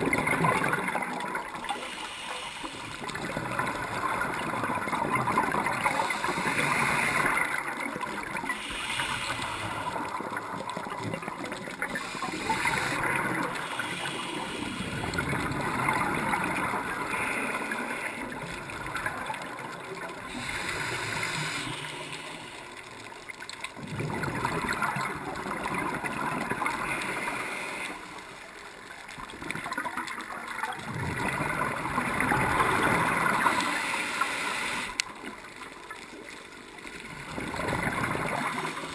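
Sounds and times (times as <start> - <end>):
diver breathing underwater: 0.0 - 23.0, 26.4 - 28.4, 32.4 - 35.1
gurgling bubbles: 0.0 - 28.2, 28.9 - 38.9.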